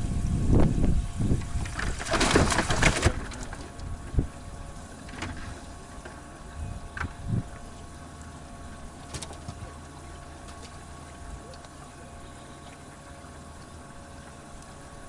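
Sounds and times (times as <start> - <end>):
wind rumble on microphone: 0.0 - 7.9
water splashing against boat: 0.0 - 15.0.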